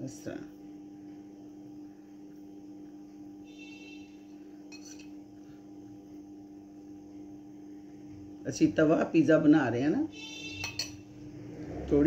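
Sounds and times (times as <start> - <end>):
low electrical hum: 0.0 - 12.0
faint high ringing tone: 3.2 - 6.2, 10.0 - 11.3.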